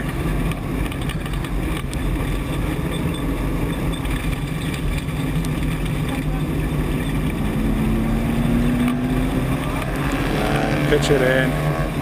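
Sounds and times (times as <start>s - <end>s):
truck engine running at speed: 0.0s - 12.0s.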